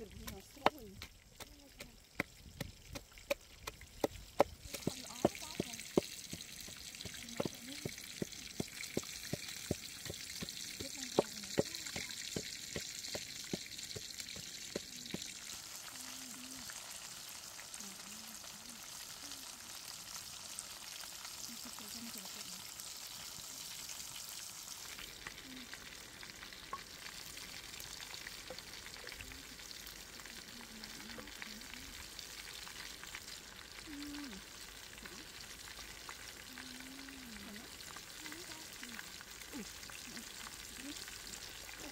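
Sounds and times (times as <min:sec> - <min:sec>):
pork sizzling in hot oil: 0:00.0 - 0:41.9
pestle pounding in mortar: 0:00.2 - 0:15.3.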